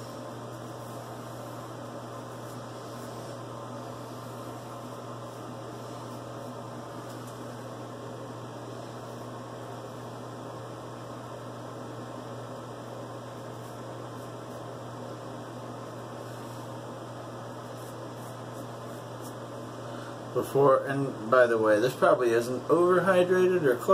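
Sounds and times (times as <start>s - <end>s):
electrical hum with hiss: 0.0s - 23.9s.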